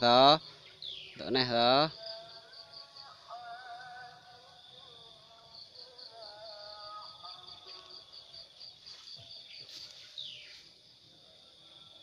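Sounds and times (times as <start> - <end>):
insects trilling: 0.0 - 12.0.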